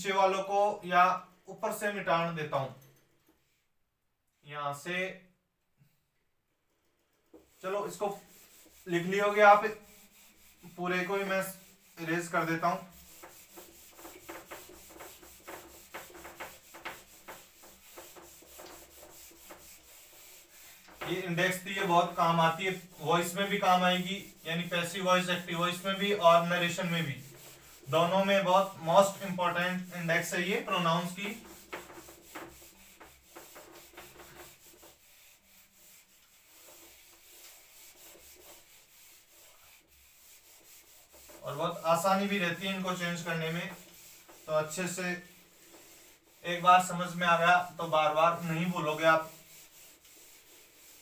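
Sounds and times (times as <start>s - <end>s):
duster wiping whiteboard: 7.3s - 51.0s.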